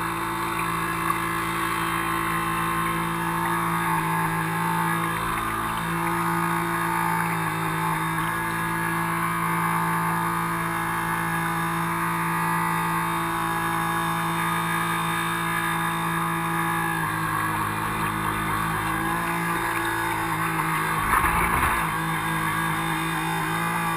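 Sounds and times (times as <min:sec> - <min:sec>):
electric motor whine: 0:00.0 - 0:23.9.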